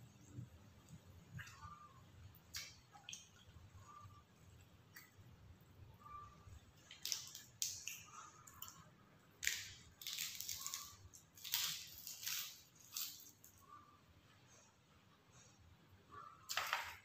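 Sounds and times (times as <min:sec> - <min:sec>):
lettuce crunching while chewed: 0:09.4 - 0:13.6.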